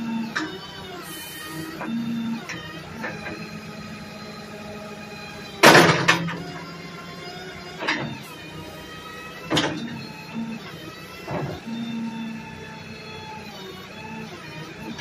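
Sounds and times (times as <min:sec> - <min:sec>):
hydraulics whining and humming: 0:00.0 - 0:15.0
backhoe arm clunks: 0:00.2 - 0:00.7, 0:01.6 - 0:03.6, 0:05.4 - 0:06.7, 0:07.7 - 0:08.3, 0:09.3 - 0:12.3.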